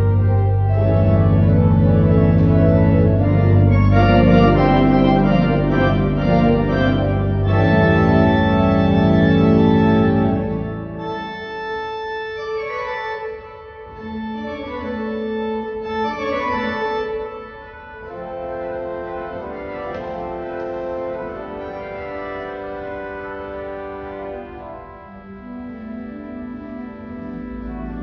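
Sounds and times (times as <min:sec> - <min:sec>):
pipe organ chords: 0:00.0 - 0:28.0.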